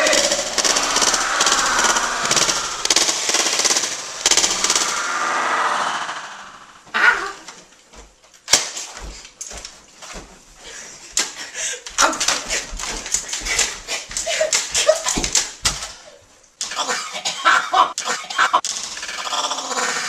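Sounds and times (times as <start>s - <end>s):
rapid machine-gun fire: 0.0s - 5.6s.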